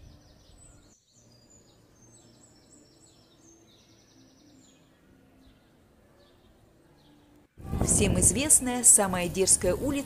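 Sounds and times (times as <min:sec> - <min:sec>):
small birds chirping: 0:00.0 - 0:08.7.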